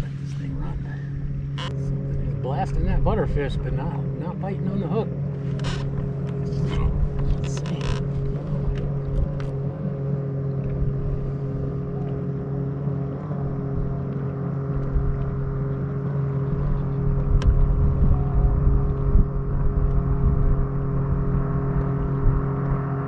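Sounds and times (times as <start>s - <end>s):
motor running steadily: 0.0s - 23.0s
wind noise on microphone: 5.5s - 9.8s, 10.6s - 12.1s, 13.4s - 23.0s.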